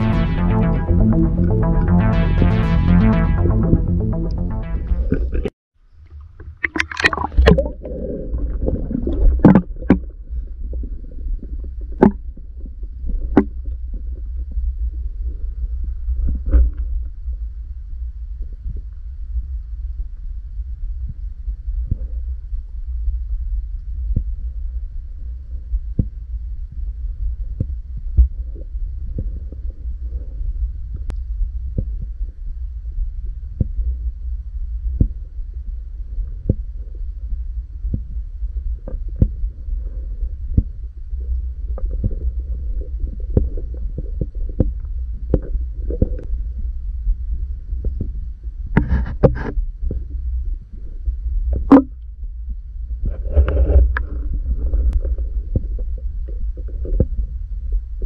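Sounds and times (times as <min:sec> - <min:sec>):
noisy bursts: 0:00.0 - 0:05.5
muffled underwater rumble: 0:00.0 - 0:58.0.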